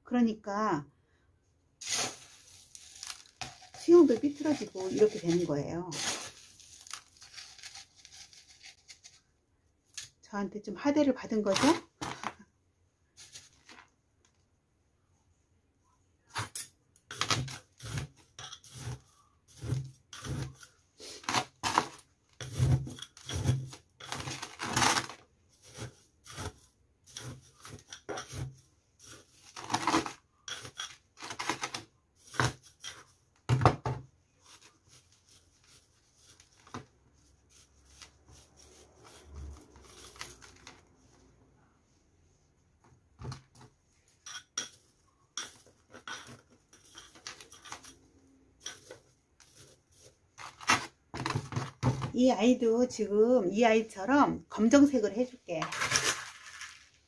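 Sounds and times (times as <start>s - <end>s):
pebbles clicking and crunching: 1.8s - 8.9s, 55.6s - 57.0s
soft scraping of pebbles: 1.8s - 9.3s.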